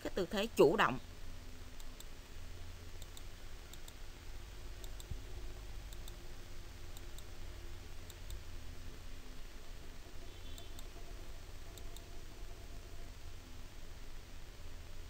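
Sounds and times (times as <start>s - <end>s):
low steady hum: 0.0s - 15.0s
computer mouse clicks: 3.0s - 4.0s, 4.8s - 5.2s, 5.9s - 6.2s, 6.9s - 7.3s, 11.8s - 12.1s.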